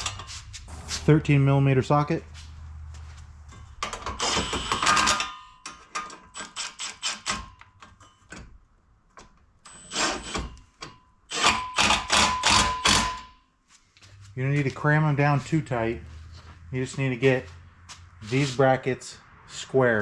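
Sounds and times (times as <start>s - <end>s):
impact wrench hammering: 10.0s - 13.4s.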